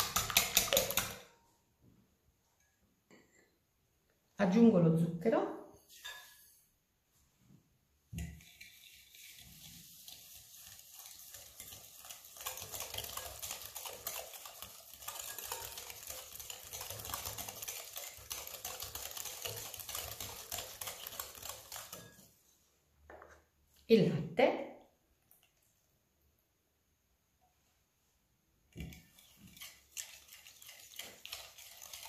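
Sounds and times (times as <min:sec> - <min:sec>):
whisk beating in glass bowl: 0:00.0 - 0:01.4, 0:08.2 - 0:22.4, 0:28.8 - 0:32.0.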